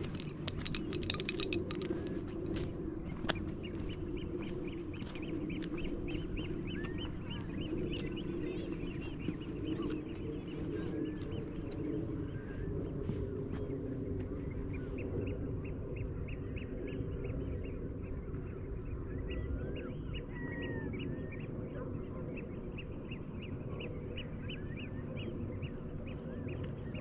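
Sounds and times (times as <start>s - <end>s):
waterbirds piping calls: 0.0s - 11.8s
steady low rumble: 0.0s - 27.0s.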